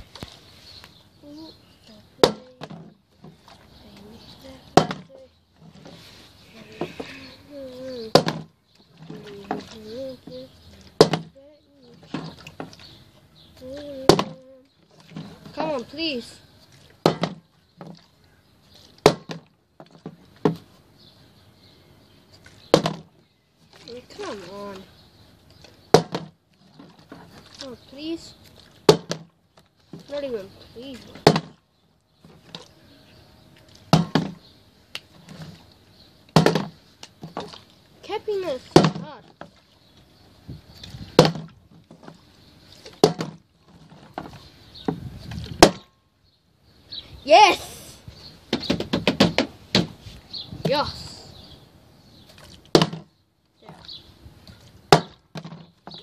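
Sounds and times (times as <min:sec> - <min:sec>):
plastic bottle thudding on wood: 0:02.2 - 0:03.4, 0:04.7 - 0:05.1, 0:08.1 - 0:09.6, 0:11.0 - 0:11.4, 0:14.0 - 0:14.4, 0:17.0 - 0:18.0, 0:19.0 - 0:20.7, 0:22.7 - 0:23.2, 0:25.9 - 0:27.3, 0:28.8 - 0:29.4, 0:31.2 - 0:31.6, 0:33.9 - 0:34.5, 0:36.3 - 0:37.6, 0:38.7 - 0:39.5, 0:41.0 - 0:42.2, 0:42.9 - 0:45.9, 0:48.5 - 0:50.0, 0:52.7 - 0:53.1, 0:54.9 - 0:56.0.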